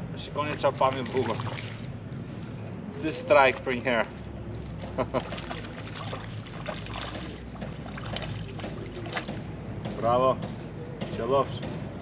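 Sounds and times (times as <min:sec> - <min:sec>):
water lapping: 0:00.4 - 0:09.7.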